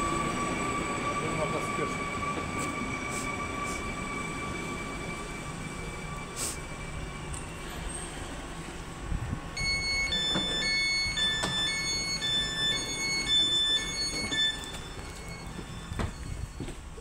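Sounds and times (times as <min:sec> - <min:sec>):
train rumbling on rails: 0:00.0 - 0:17.0
electronic beeping tones: 0:09.6 - 0:16.6.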